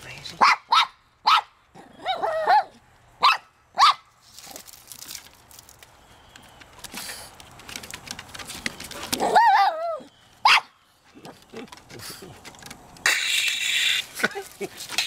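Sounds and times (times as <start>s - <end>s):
small dog barking: 0.4s - 4.1s, 9.2s - 10.7s
scuffling and clicks: 4.2s - 10.4s, 11.0s - 15.0s.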